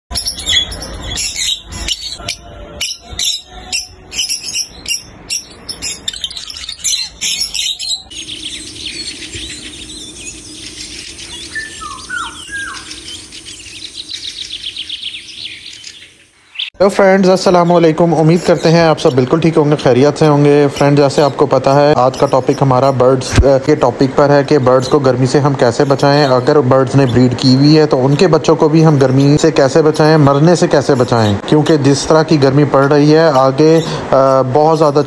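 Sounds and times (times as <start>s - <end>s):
high chirps: 0.1s - 16.8s
parrots squawking: 0.1s - 16.8s.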